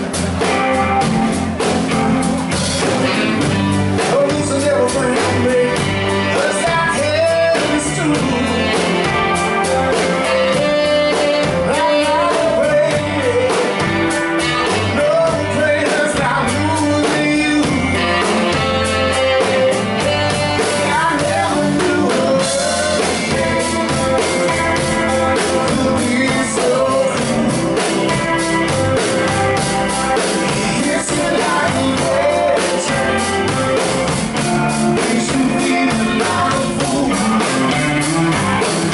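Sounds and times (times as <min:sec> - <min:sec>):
bass guitar: 0:00.0 - 0:38.9
drum kit: 0:00.0 - 0:38.9
electric guitar: 0:00.0 - 0:38.9
person singing into microphone: 0:04.0 - 0:09.7, 0:10.5 - 0:28.3, 0:30.2 - 0:33.6, 0:34.6 - 0:37.9.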